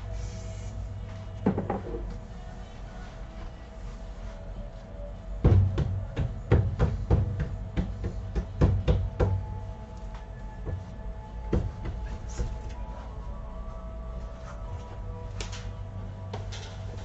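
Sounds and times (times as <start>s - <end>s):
faint machine hum: 0.0s - 17.0s
dough knocking and thumping: 5.4s - 9.6s.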